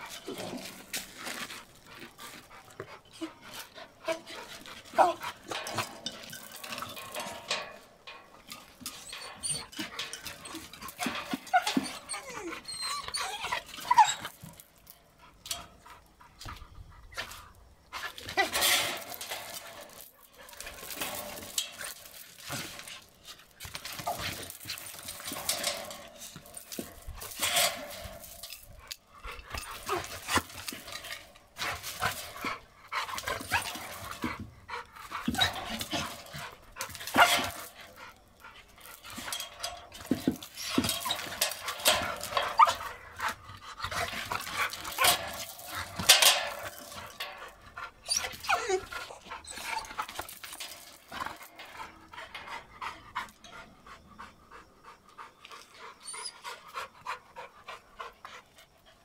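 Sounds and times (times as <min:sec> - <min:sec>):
dog panting: 0:51.6 - 0:59.0.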